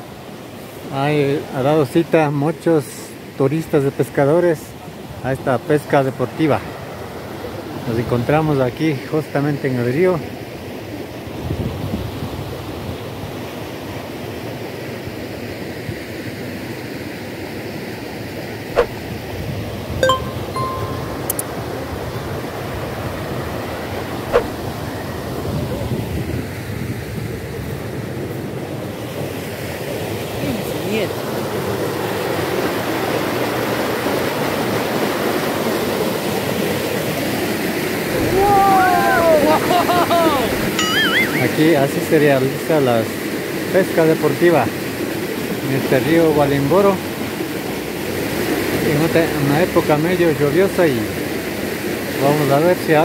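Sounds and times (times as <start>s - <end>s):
chime-like tone: 20.0s - 21.6s, 40.8s - 41.7s
sharp click: 21.3s - 21.5s.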